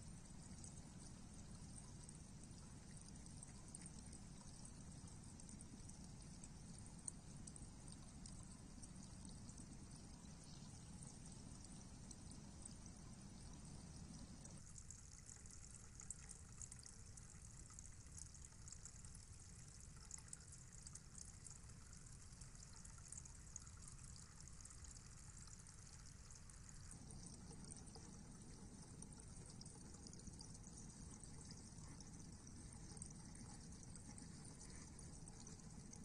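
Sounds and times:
microphone hiss and low rumble: 0.0 - 14.6
soft crackling ticks: 0.2 - 36.0.

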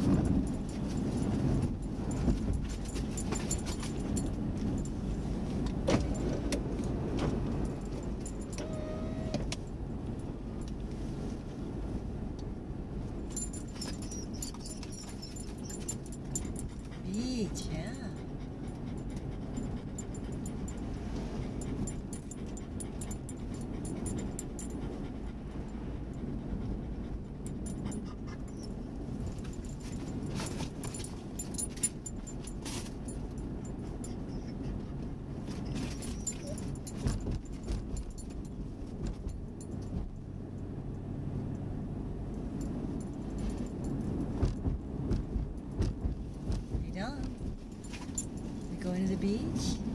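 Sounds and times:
car road rumble: 0.0 - 49.9
dog tags jingling: 0.1 - 5.1, 7.5 - 9.0, 13.2 - 25.0, 27.3 - 34.4, 35.6 - 40.2
dog whining: 8.6 - 9.5, 13.7 - 18.3, 33.8 - 37.0
dog panting: 14.0 - 28.8.

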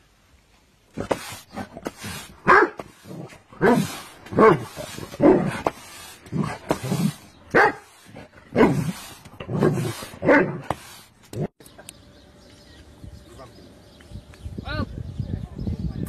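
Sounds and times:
dog barking: 2.4 - 2.8, 7.5 - 7.9.

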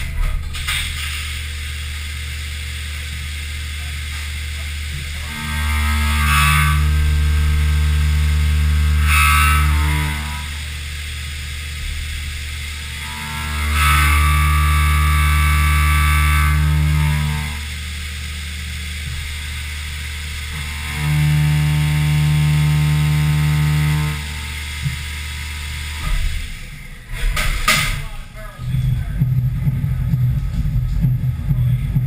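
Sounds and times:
mill cutting aluminum with steady tone: 0.0 - 28.2
milling machine spindle and coolant hum: 0.0 - 32.0.

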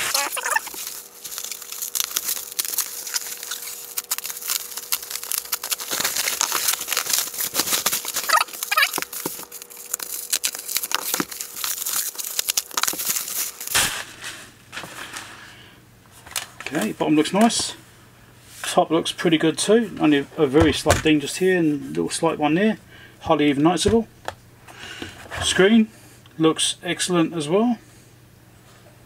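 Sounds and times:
bubble wrap crackling: 0.0 - 15.2.

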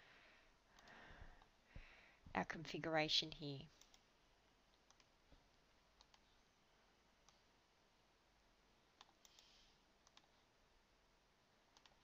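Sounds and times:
computer mouse clicks: 0.8 - 1.5, 4.8 - 5.1, 6.0 - 6.3, 9.0 - 10.4, 11.8 - 12.0.

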